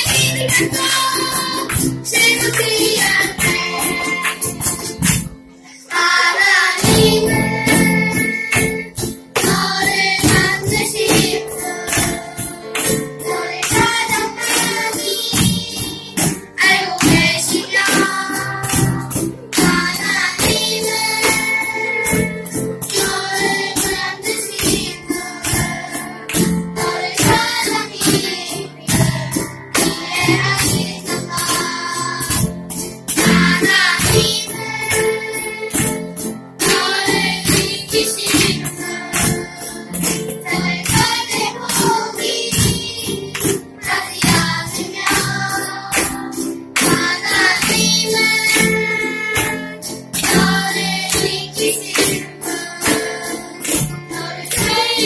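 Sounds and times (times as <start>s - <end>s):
cajon drum beat: 0.0s - 5.4s, 6.0s - 55.0s
children's choir singing: 0.0s - 55.0s
keyboard: 0.0s - 55.0s
small guitars: 0.0s - 55.0s.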